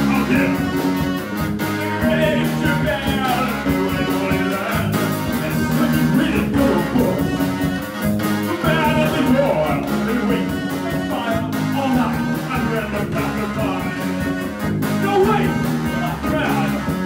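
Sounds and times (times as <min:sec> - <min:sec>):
electric guitar: 0:00.0 - 0:17.0
keyboard synth: 0:00.0 - 0:17.0
person singing: 0:00.0 - 0:17.0.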